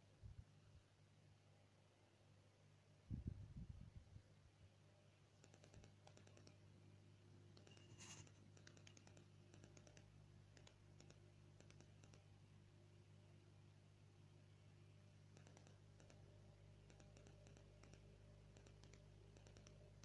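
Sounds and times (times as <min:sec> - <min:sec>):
faint low hum: 0:00.0 - 0:20.0
faint clicking: 0:05.4 - 0:06.6, 0:07.5 - 0:12.3, 0:15.2 - 0:20.0.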